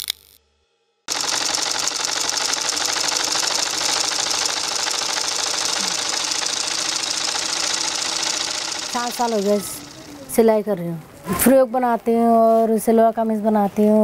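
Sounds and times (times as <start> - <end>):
sewing machine stitching: 1.1 - 10.4.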